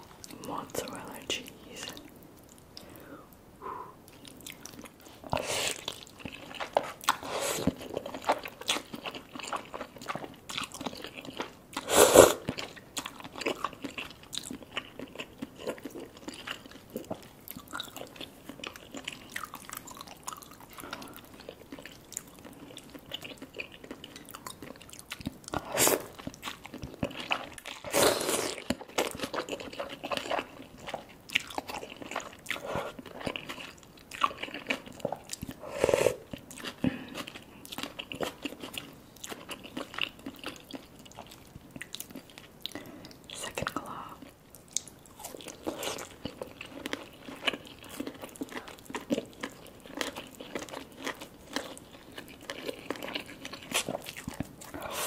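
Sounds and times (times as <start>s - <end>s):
wet chewing: 4.1s - 35.6s, 36.2s - 55.0s
slurping noodles: 11.8s - 12.5s, 27.8s - 28.7s.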